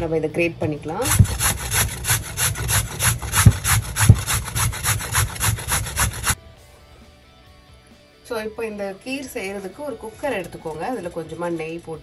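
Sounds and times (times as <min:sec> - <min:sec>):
sweet potato grated on metal grater: 0:01.0 - 0:06.4.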